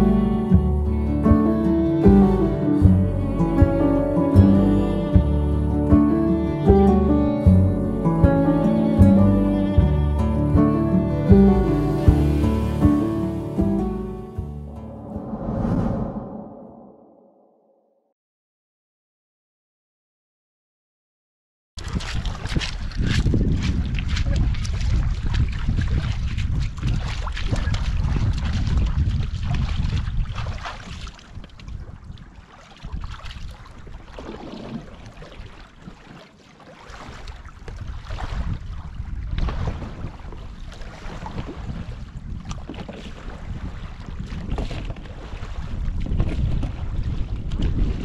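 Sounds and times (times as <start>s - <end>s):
splashing in shallow water: 10.6s - 13.8s, 21.8s - 48.0s
wind buffeting microphone: 21.8s - 35.6s, 37.3s - 48.0s
small waves lapping on pebbles: 21.8s - 48.0s.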